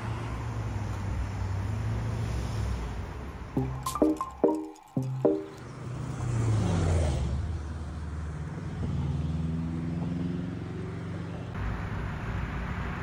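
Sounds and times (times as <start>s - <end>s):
traffic hum: 0.0s - 3.9s
vehicle passing by: 5.6s - 13.0s
vehicle accelerating away: 5.7s - 11.5s.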